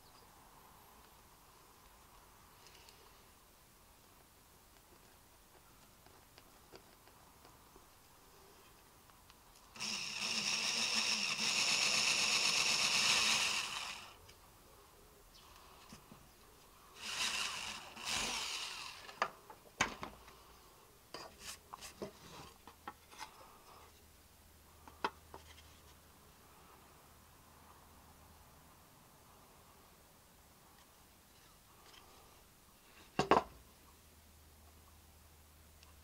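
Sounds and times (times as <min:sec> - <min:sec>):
electric drill boring through metal: 0:09.8 - 0:14.2, 0:17.0 - 0:19.2.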